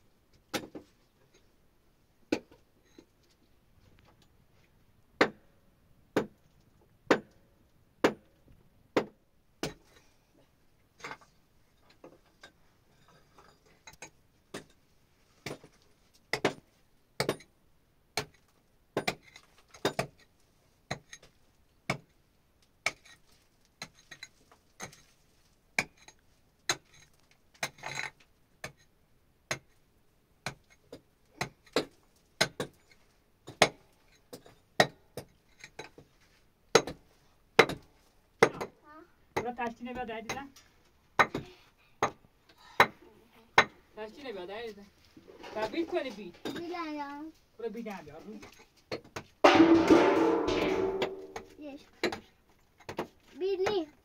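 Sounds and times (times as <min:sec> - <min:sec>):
sharp knocks on something hard: 0:49.5 - 0:51.6.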